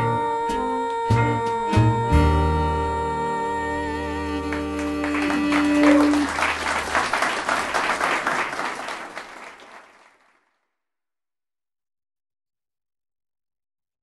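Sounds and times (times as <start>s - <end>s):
jazz band held chord: 3.8s - 9.3s
audience applause: 4.5s - 10.4s.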